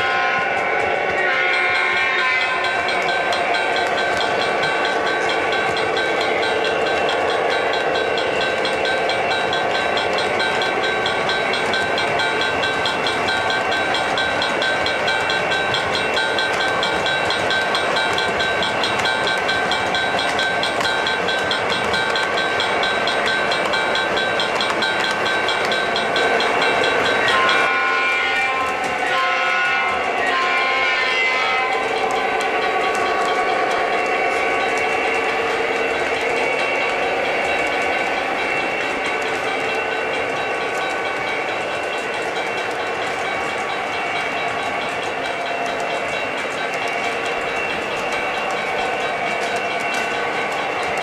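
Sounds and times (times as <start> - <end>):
model train rolling: 0.0 - 51.0
high pulsing ring: 1.0 - 51.0
steady tones: 31.6 - 51.0.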